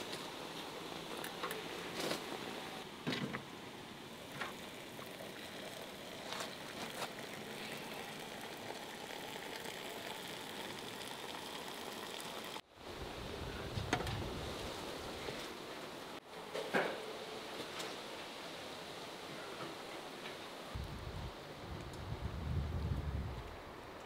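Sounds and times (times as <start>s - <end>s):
hot water pouring from tap: 4.2s - 12.6s.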